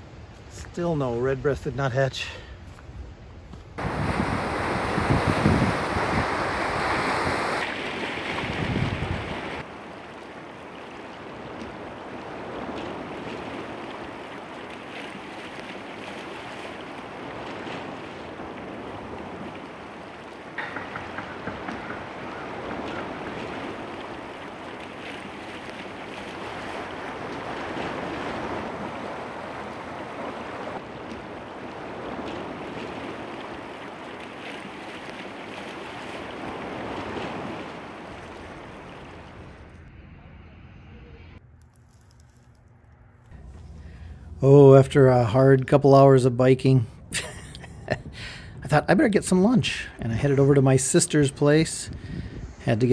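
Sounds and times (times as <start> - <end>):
wind: 0.0 - 52.9
waves washing on rocky shore: 3.8 - 39.5.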